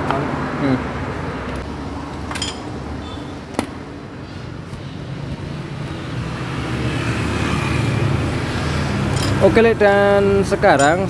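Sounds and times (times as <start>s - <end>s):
road traffic rumbling: 0.0s - 11.0s.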